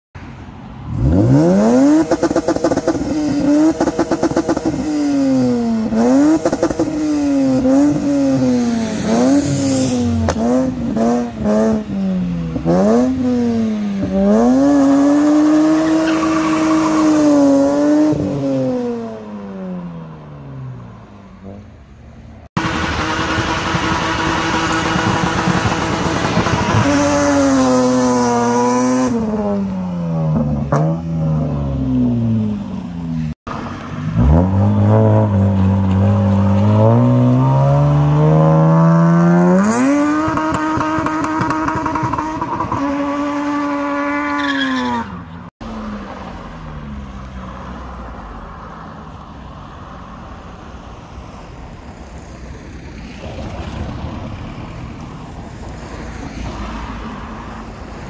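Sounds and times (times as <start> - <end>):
car engine revving hard: 0.9 - 12.0, 12.6 - 19.0, 22.6 - 31.5, 34.1 - 44.5.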